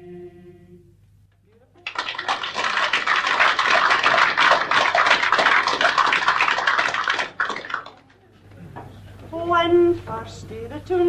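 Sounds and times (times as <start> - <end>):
faint low hum: 0.0 - 11.0
audience applauding: 1.8 - 8.2.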